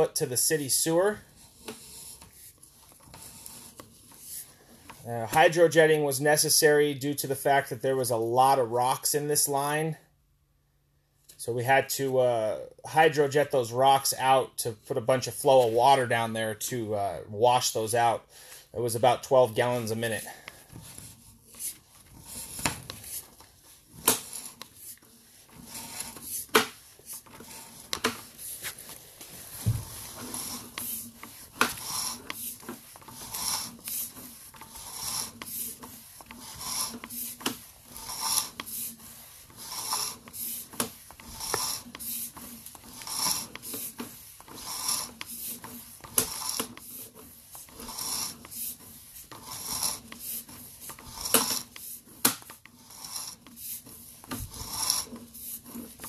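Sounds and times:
cable rubbing and rasping: 0.0 - 6.7, 18.8 - 56.0.

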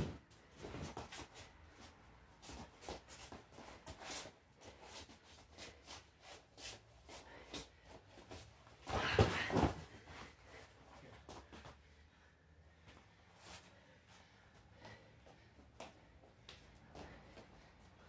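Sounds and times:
feet scuffing on vinyl mat: 0.0 - 7.6
bodies and hands thumping: 8.8 - 10.1.

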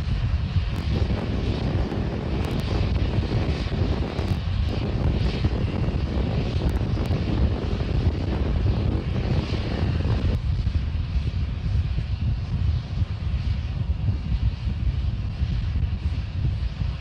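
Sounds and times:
rocket engine roar: 0.0 - 17.0.

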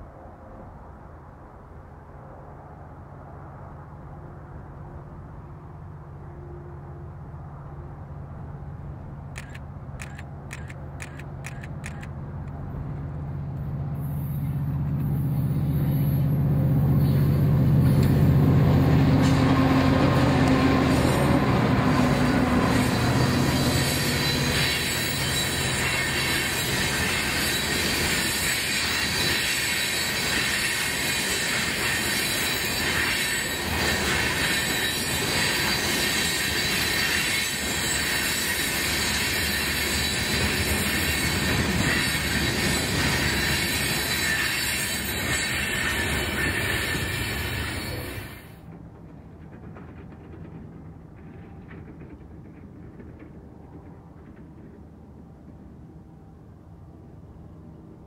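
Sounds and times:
diesel locomotive engines: 0.0 - 58.0
freight cars rumbling: 3.9 - 55.9
high wheel squeal: 14.0 - 18.2, 20.2 - 48.6
wheels clickety-clack: 22.2 - 55.7.

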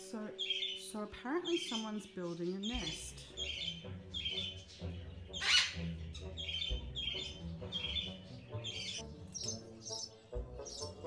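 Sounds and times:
parrot chirping: 2.6 - 11.0
parrot squawk: 5.4 - 9.0.

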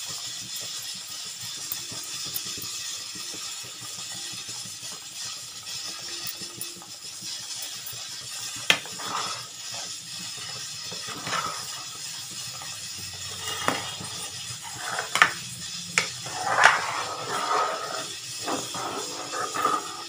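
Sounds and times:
steady hiss: 0.0 - 20.0
ladle stirring thick liquid: 8.8 - 20.0.

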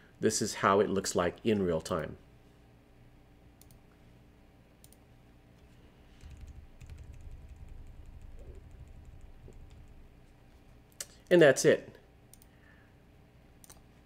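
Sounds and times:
keyboard and mouse clicks: 3.6 - 3.8, 6.2 - 10.0, 12.3 - 12.5, 13.6 - 13.9
low hum: 4.9 - 11.3.

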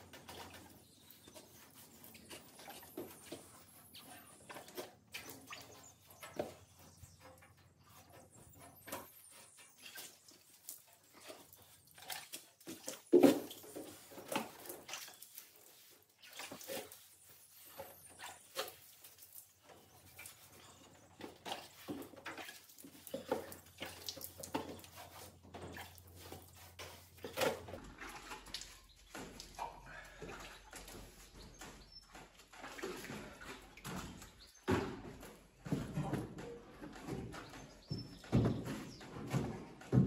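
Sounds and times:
sponge squelching: 0.0 - 34.6
wet sponge wiping metal: 14.9 - 19.2
water dripping: 21.2 - 34.5.

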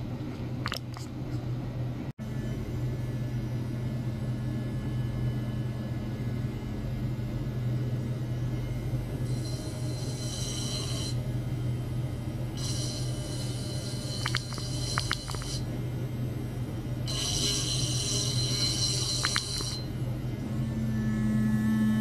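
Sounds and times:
bench equipment humming: 0.0 - 22.0
high-pitched hissy buzz: 12.6 - 15.7.

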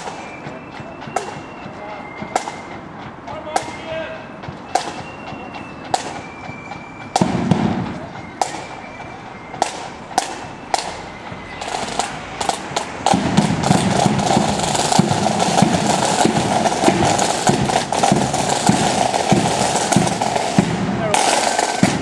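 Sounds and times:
flutes playing: 0.0 - 12.8, 13.5 - 22.0
rapid side drums: 0.0 - 22.0
sharp drum taps: 12.0 - 22.0
bass drum: 12.8 - 22.0.

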